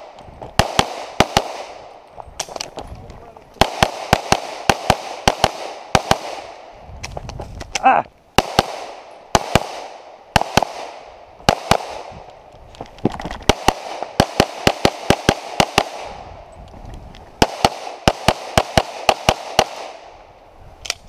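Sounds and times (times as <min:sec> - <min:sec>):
pistol shots: 0:00.6 - 0:02.7, 0:03.6 - 0:06.6, 0:08.4 - 0:12.2, 0:13.5 - 0:16.2, 0:17.4 - 0:20.1.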